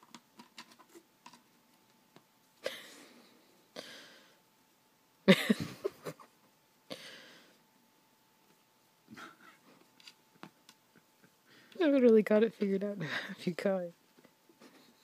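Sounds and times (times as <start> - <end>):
person stifling laughter: 5.3 - 6.4.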